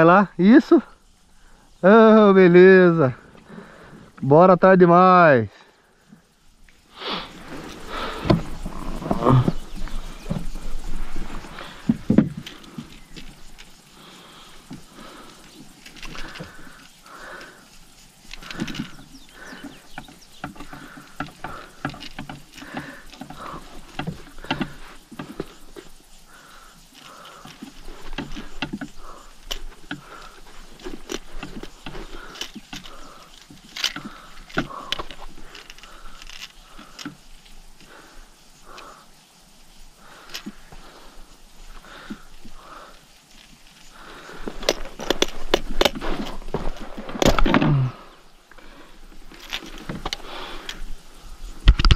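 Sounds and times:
creaking scrape: 7.0 - 37.3, 42.0 - 50.9
gear knocking on plastic kayak: 11.8 - 13.4, 18.3 - 26.0
pedal drive squeaks: 14.6 - 37.7.

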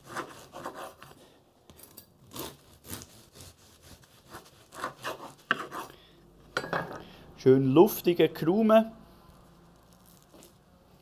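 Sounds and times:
knife sawing through bread crust: 0.0 - 1.2, 2.2 - 6.0.

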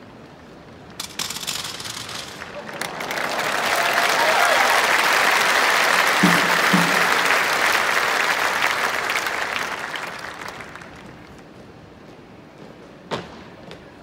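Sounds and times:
audience applauding: 2.3 - 11.4.

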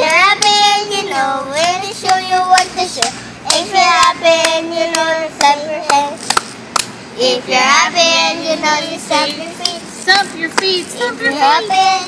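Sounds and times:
hand claps: 0.0 - 0.6, 1.6 - 6.9.

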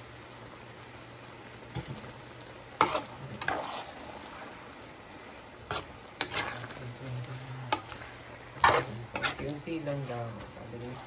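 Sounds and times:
low steady hum: 0.0 - 11.0
spatula stirring noodles in broth: 2.1 - 11.0
spatula scraping and knocking pan: 2.8 - 4.5, 5.6 - 11.0.

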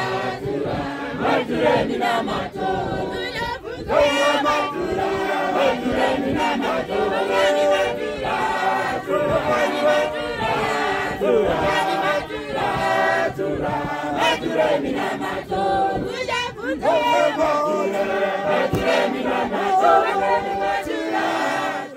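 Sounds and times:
congregation singing a hymn: 0.0 - 21.9.

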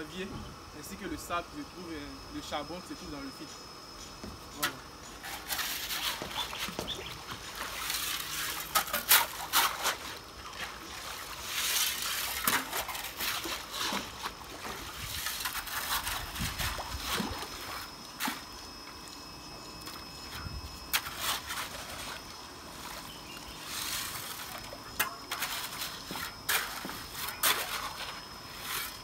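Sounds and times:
shovel scraping gravel: 4.6 - 18.5, 20.4 - 29.0
water splashing and sloshing: 5.2 - 19.1, 19.8 - 29.0.

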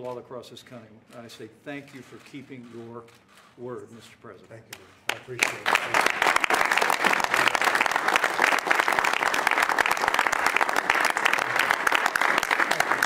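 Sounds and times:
people applauding: 5.1 - 13.0.

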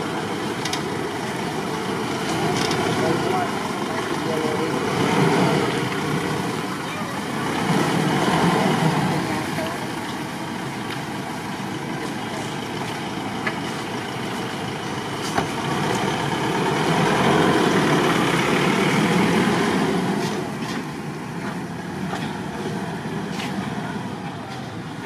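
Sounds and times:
pickup truck driving past: 0.0 - 24.2.

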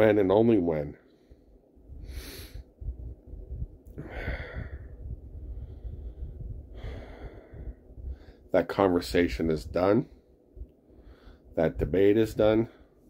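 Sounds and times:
man breathing: 1.0 - 8.5, 10.1 - 11.6, 12.6 - 13.0
low rumble: 1.2 - 13.0.

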